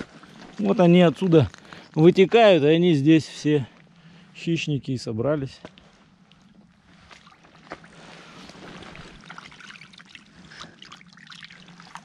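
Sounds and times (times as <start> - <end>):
faint splashes in water: 6.2 - 12.0
water trickling: 6.2 - 12.0.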